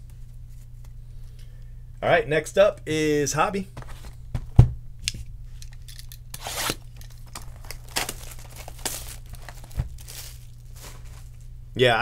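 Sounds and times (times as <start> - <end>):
plastic shrink-wrap ripping: 6.3 - 11.4.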